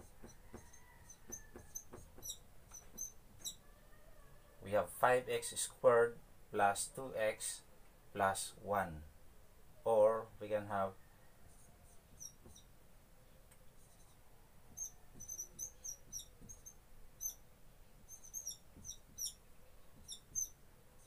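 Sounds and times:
marker squeaking on a whiteboard: 0:00.0 - 0:03.7, 0:11.5 - 0:12.7, 0:13.7 - 0:17.4, 0:18.1 - 0:19.4, 0:20.0 - 0:21.0.

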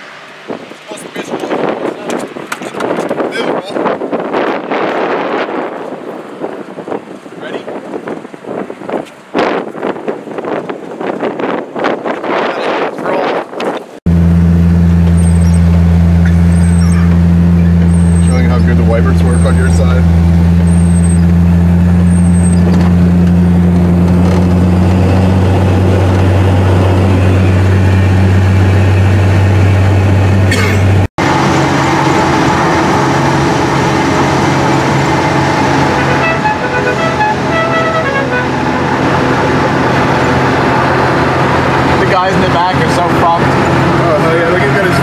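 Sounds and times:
car engine and road noise: 0:00.0 - 0:45.0
short tooting tones: 0:35.9 - 0:38.9.

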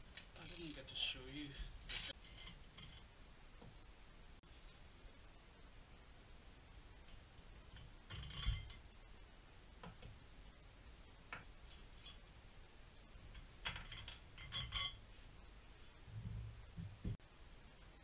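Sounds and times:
ratchet wrench clicking: 0:00.1 - 0:00.8, 0:01.9 - 0:02.2.

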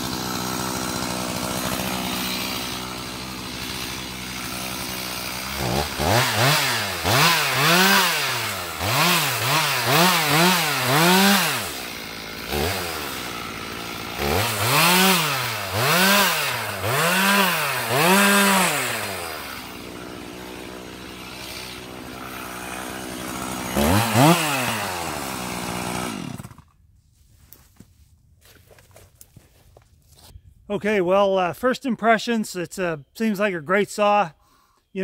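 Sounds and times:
chainsaw revving and idling: 0:00.0 - 0:26.8.

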